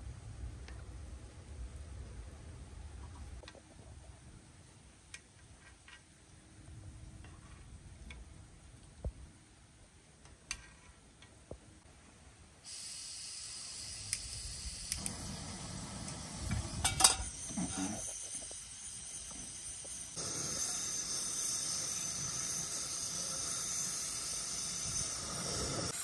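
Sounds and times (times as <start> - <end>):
steady high hiss: 11.2 - 26.0.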